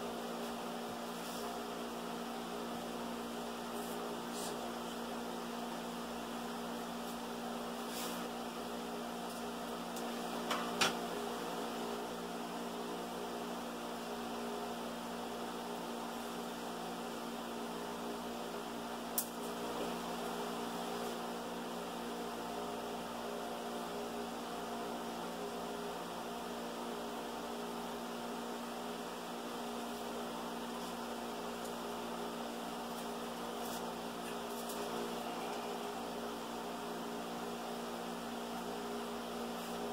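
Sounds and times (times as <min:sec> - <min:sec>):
steady electrical hum: 0:00.0 - 0:39.9.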